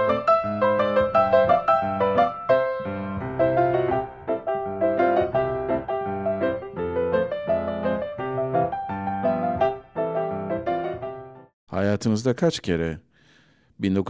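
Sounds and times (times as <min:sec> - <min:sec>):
piano music: 0:00.0 - 0:11.6.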